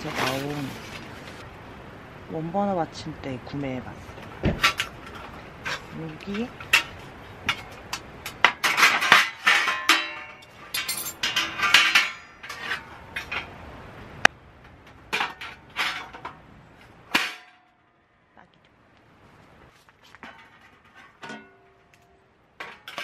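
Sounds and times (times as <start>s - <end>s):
metal clinks and rattles: 8.6s - 13.5s.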